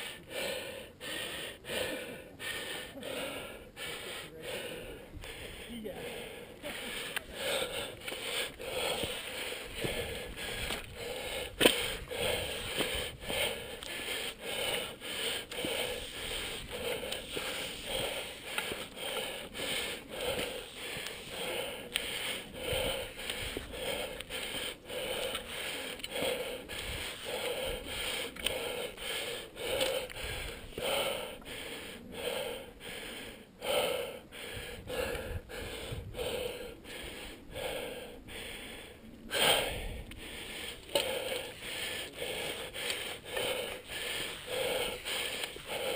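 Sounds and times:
man panting heavily: 0.0 - 45.9.

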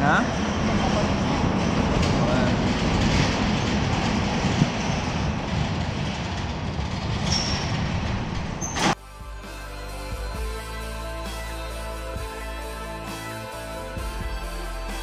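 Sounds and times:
sliding metal doors rumbling: 0.0 - 9.0
music: 9.0 - 15.0.

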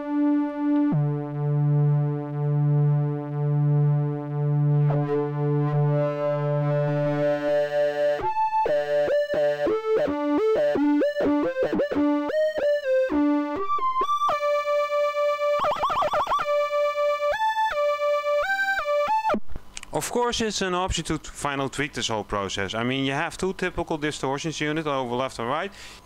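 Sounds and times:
distorted acid synth line: 15.1 - 17.6.

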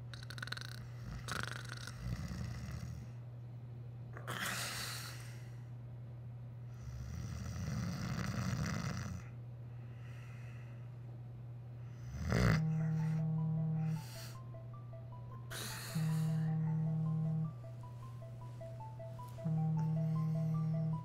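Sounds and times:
steady low hum: 0.0 - 21.0
man snoring: 0.1 - 3.2, 6.8 - 9.3, 12.0 - 14.4.

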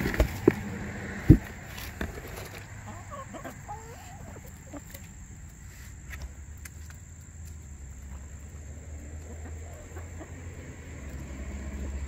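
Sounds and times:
hens clucking softly: 2.3 - 5.3, 9.0 - 11.2.

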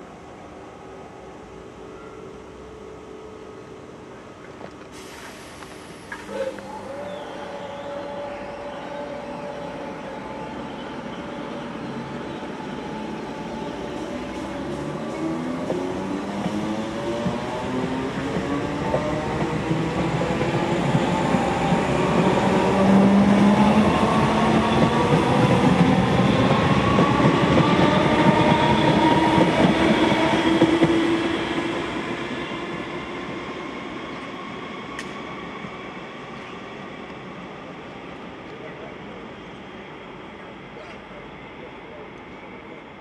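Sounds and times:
train wheels rumbling on rails: 11.9 - 37.2.

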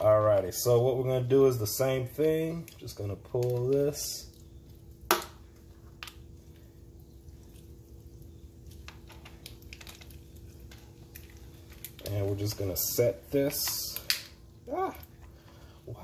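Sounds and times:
faint steady hum: 0.0 - 16.0
lobster shell cracking: 5.1 - 6.2, 8.8 - 12.1, 13.6 - 15.1.

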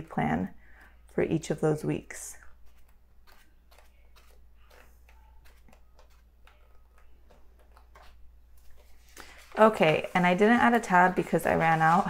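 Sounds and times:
paper pages being turned: 2.4 - 12.0.

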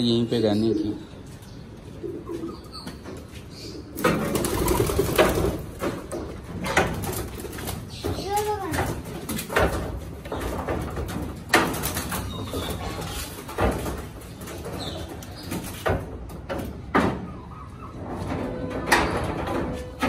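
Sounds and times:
pigeons cooing: 1.8 - 6.4.

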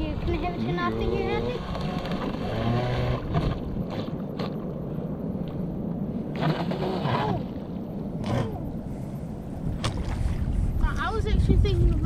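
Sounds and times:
wind rumble on microphone: 0.0 - 12.0
rc speedboat motor: 0.4 - 4.5, 6.3 - 7.6, 8.2 - 8.8.

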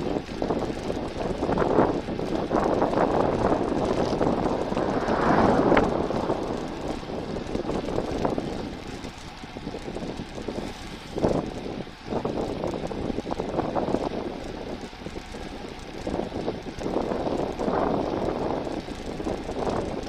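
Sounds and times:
bicycle tyres on asphalt: 0.0 - 20.0
rushing wind: 1.2 - 10.6.

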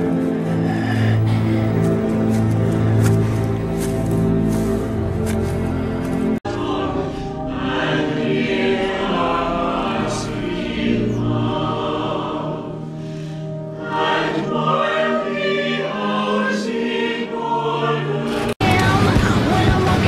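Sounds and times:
congregation singing a hymn: 6.4 - 12.9, 13.8 - 18.6.

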